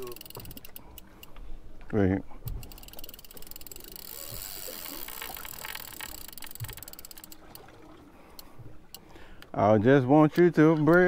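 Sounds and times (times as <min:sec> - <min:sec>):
fishing reel clicking: 0:00.0 - 0:01.4, 0:02.5 - 0:07.6.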